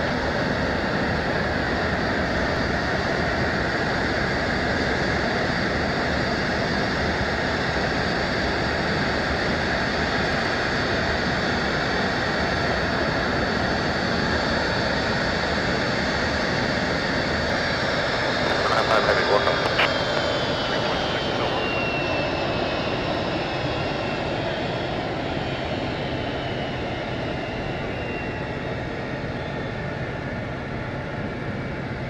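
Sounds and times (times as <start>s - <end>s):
jet engine rushing: 16.6s - 22.4s
faint high whine: 17.5s - 22.4s.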